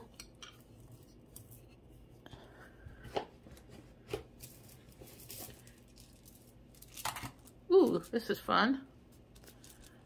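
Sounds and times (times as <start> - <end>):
beaded bracelets clinking: 4.4 - 8.2.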